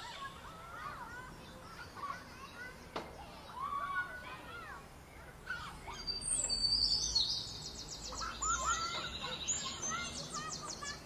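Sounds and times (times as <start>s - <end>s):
small birds chirping and singing: 0.0s - 11.0s
bird trills: 5.8s - 11.0s.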